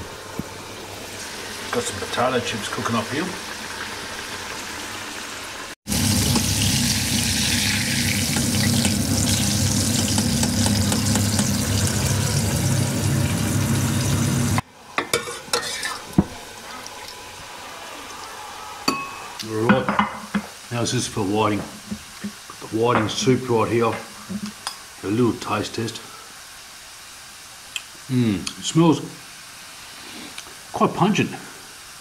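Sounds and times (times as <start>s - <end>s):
hot oil sizzling and bubbling: 0.0s - 32.0s
kitchen utensils clinking: 15.0s - 16.3s, 18.9s - 20.5s.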